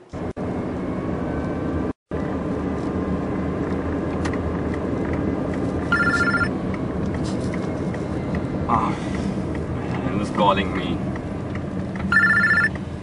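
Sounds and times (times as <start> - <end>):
car engine and road noise: 0.0 - 13.0
mobile phone ringing: 5.9 - 6.5, 12.1 - 12.8.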